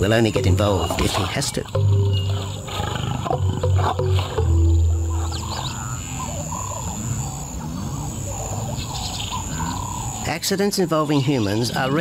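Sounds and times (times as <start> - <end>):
background music: 0.0 - 7.0
lion growling: 0.0 - 10.3.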